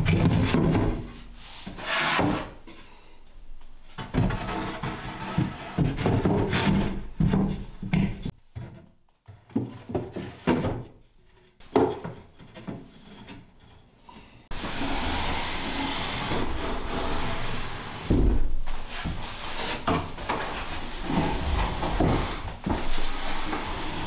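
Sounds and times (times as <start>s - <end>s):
plywood panels sliding and knocking: 11.6s - 24.0s.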